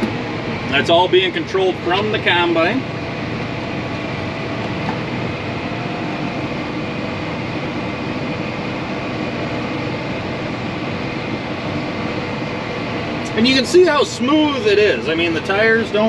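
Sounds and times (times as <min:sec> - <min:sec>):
cab fan running: 0:00.0 - 0:16.0
faint steady tones: 0:00.0 - 0:16.0
tractor engine drone: 0:00.0 - 0:16.0.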